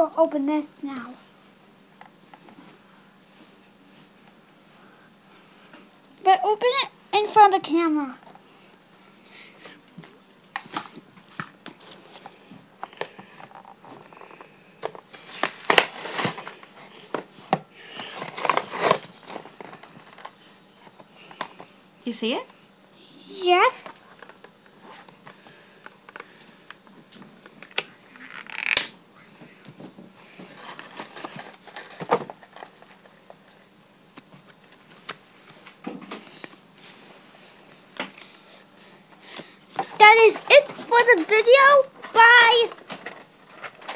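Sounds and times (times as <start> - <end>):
packaging crinkling and clicking: 14.2 - 17.3, 18.1 - 20.4
toy packaging clicks and rustles: 18.0 - 20.4, 30.6 - 33.2, 39.8 - 43.9.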